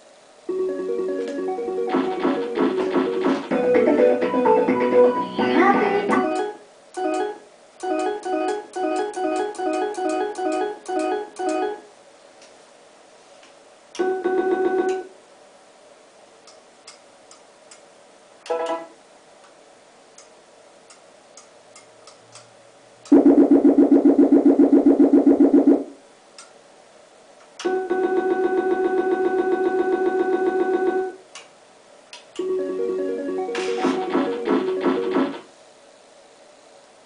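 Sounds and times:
slot machine jingle: 0.5s - 5.2s, 6.2s - 11.8s, 18.5s - 19.0s, 32.4s - 35.2s
slot machine beeps: 6.2s - 11.8s, 32.4s - 35.4s.

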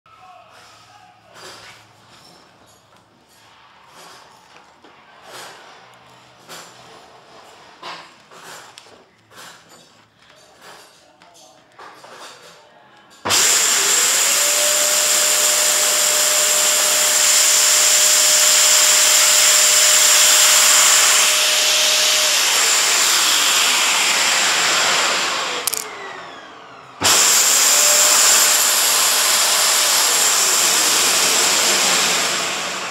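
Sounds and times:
vacuum cleaner running: 13.3s - 32.9s.

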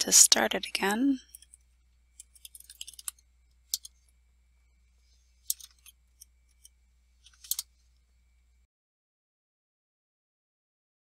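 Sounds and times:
faint low hum: 0.0s - 8.7s.

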